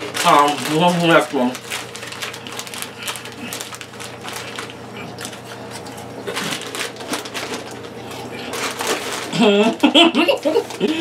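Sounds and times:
rummaging in cardboard box: 0.0 - 9.6
plastic crisp packet crinkling: 0.0 - 11.0.

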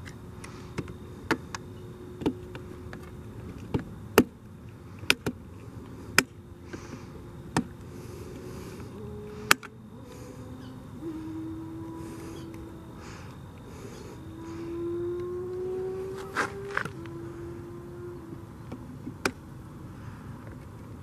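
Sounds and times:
flying insect buzzing: 6.0 - 19.0.

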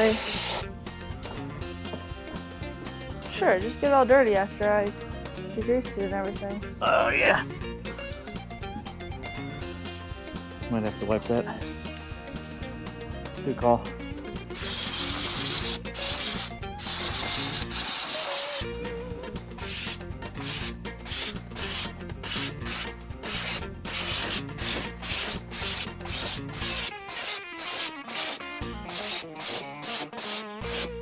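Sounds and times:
air spray gun spraying: 0.0 - 0.6, 14.5 - 18.6, 19.6 - 31.0
background music: 0.0 - 31.0.

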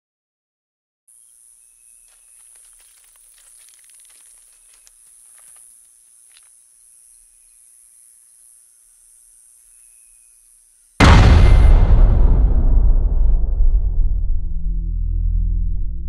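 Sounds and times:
insect drone: 1.1 - 11.3
crackling and rustling clicks: 2.1 - 6.6.

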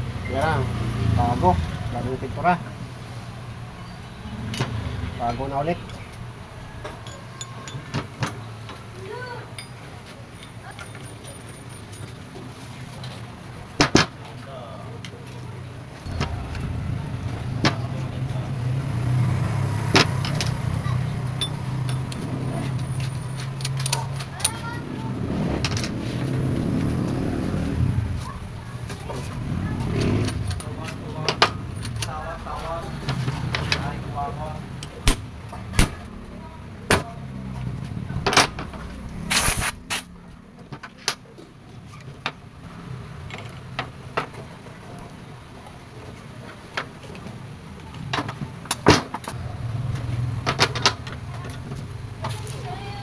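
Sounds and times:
steady low hum: 16.0 - 22.9
short hiss: 39.3 - 40.1.

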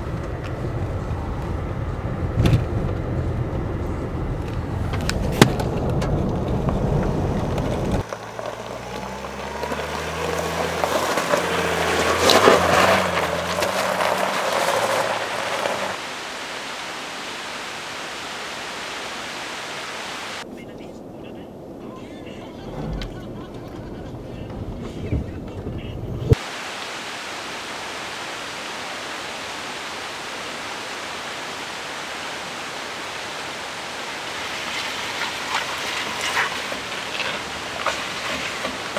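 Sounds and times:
vehicle rumble with sharp knocks: 0.0 - 16.0, 22.4 - 26.4, 34.4 - 38.9
engine low hum: 0.0 - 18.6, 22.2 - 26.4
tyres over gravel and stones: 4.4 - 16.0, 33.8 - 38.9.

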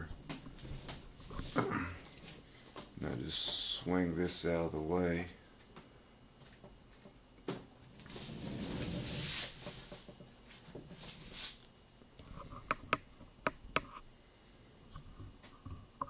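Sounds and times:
rustling sliding handling noise: 8.0 - 11.7.

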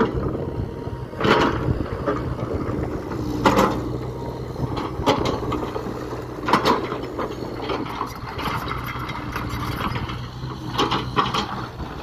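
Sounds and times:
excavator engine running: 0.0 - 12.0.

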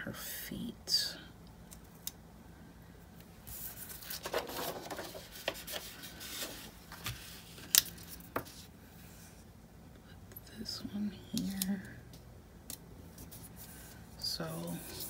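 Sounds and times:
paper pages rustling: 3.5 - 8.7.

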